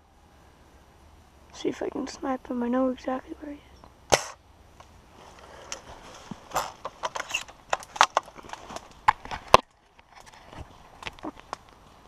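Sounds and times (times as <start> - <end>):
footsteps crunching dry leaves: 5.1 - 6.8.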